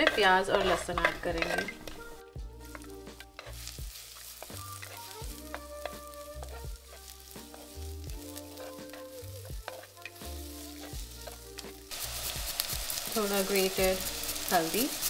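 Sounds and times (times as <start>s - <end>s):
wooden spatula scraping a pot: 0.0s - 11.9s
onion and garlic sizzling in oil: 0.0s - 15.0s
soft background music: 0.0s - 15.0s.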